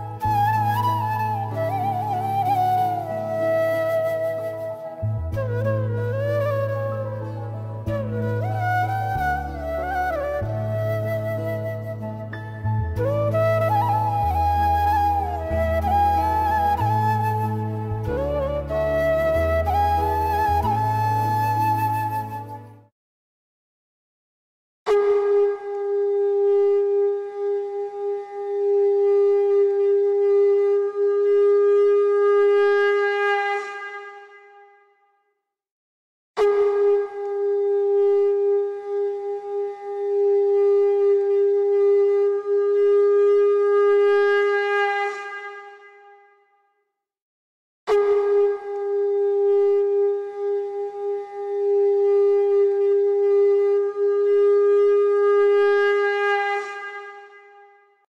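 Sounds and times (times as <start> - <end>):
conch shell blown: 24.9 - 35.0, 36.4 - 46.5, 47.9 - 58.0
long wind instrument note: 36.4 - 46.5, 47.9 - 58.0.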